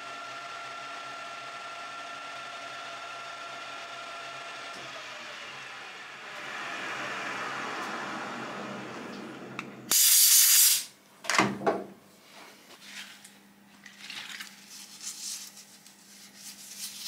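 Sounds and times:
steady whir: 0:01.6 - 0:10.0
spray hiss: 0:09.9 - 0:10.9.

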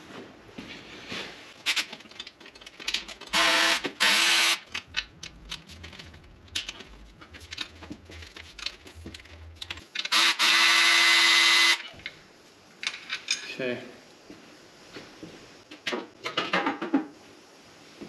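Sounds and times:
power tool spinning bolts: 0:03.3 - 0:05.0.

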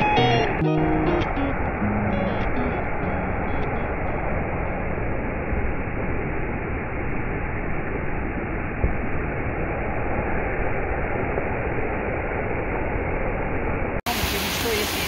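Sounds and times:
waterfall rushing into pool: 0:00.0 - 0:15.0.

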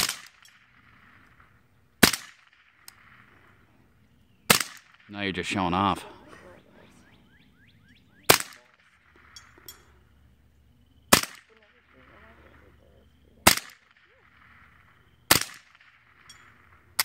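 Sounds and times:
rifle shots with echo: 0:00.0 - 0:03.7, 0:04.5 - 0:06.1, 0:08.2 - 0:09.6, 0:11.1 - 0:12.6, 0:13.4 - 0:17.0.

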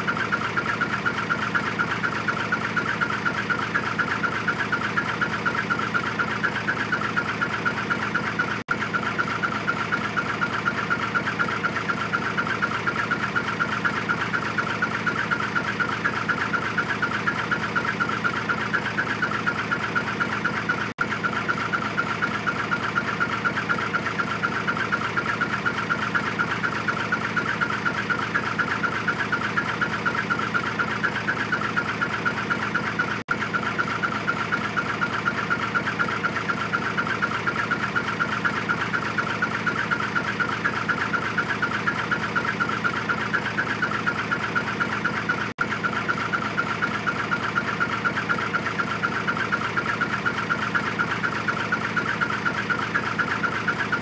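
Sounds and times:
diesel truck engine idling: 0:00.0 - 0:54.0.

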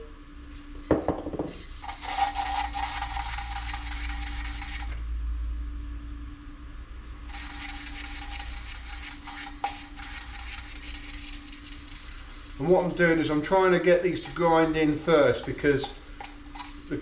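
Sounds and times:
gritty rasping valve grinding: 0:01.6 - 0:04.9, 0:07.3 - 0:17.0.

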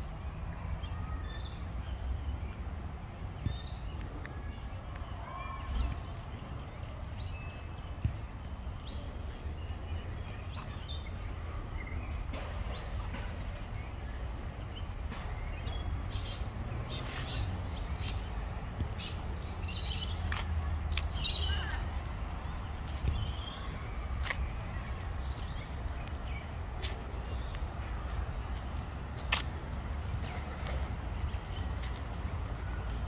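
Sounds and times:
birds chirping: 0:13.6 - 0:33.0.

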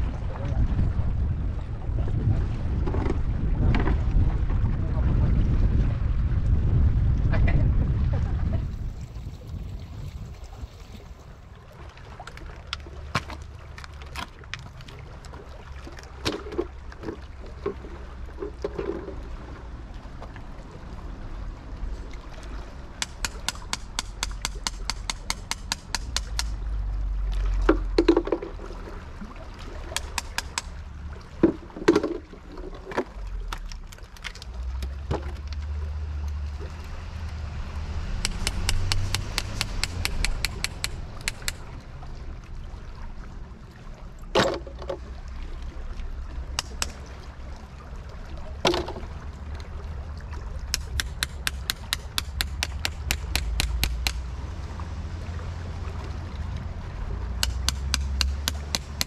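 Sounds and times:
rapid sharp tool taps: 0:23.0 - 0:26.5, 0:30.0 - 0:30.7, 0:38.2 - 0:41.6, 0:50.7 - 0:54.2, 0:57.4 - 0:59.0.

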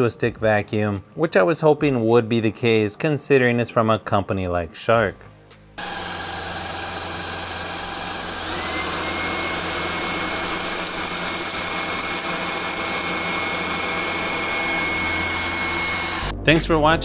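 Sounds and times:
high motor whine: 0:05.8 - 0:16.3
stick vacuum running: 0:05.8 - 0:16.3.

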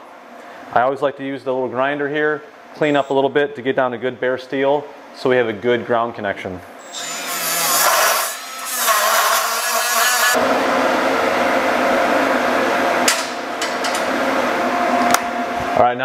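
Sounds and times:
die grinder on steel: 0:06.9 - 0:10.4.

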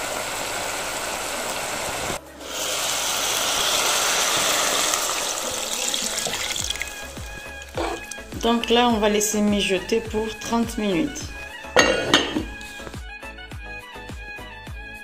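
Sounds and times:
water gushing into a pot: 0:00.0 - 0:09.0
meat bubbling in a pot: 0:02.4 - 0:09.3.

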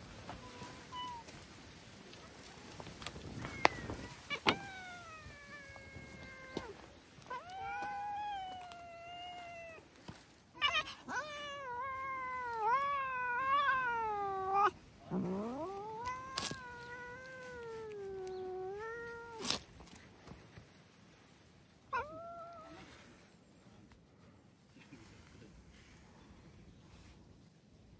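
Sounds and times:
cat yowling: 0:03.4 - 0:09.8, 0:10.6 - 0:19.6, 0:21.9 - 0:22.9.

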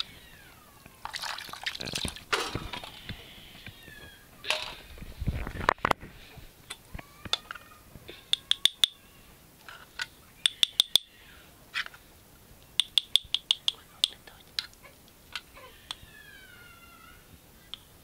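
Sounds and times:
metal spoon tapping a cup and pot: 0:08.3 - 0:08.9, 0:10.4 - 0:11.1, 0:12.8 - 0:14.2.

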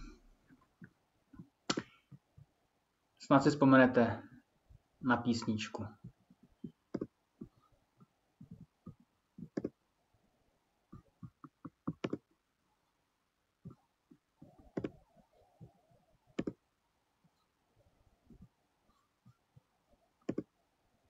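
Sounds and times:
computer mouse clicking: 0:09.4 - 0:09.8, 0:11.2 - 0:12.3, 0:14.7 - 0:15.0, 0:16.4 - 0:16.6, 0:20.2 - 0:20.5.

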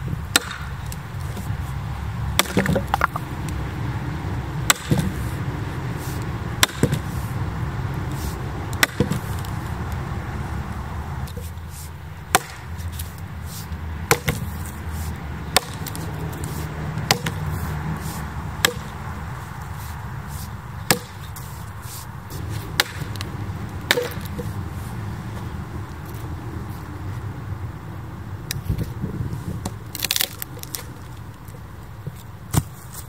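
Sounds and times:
low steady rumble: 0:00.0 - 0:32.8
axe chopping wood: 0:00.3 - 0:01.5, 0:02.3 - 0:03.2, 0:04.6 - 0:05.2, 0:06.6 - 0:07.2, 0:08.7 - 0:09.6, 0:12.3 - 0:13.1, 0:14.0 - 0:14.8, 0:15.4 - 0:19.9, 0:20.8 - 0:21.5, 0:22.4 - 0:24.6, 0:32.5 - 0:32.8.

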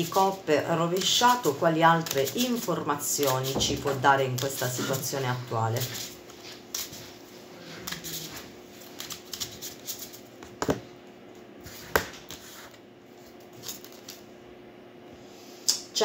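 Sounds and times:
cards being shuffled: 0:01.0 - 0:03.6, 0:05.8 - 0:07.1, 0:07.8 - 0:10.8, 0:11.7 - 0:14.3.

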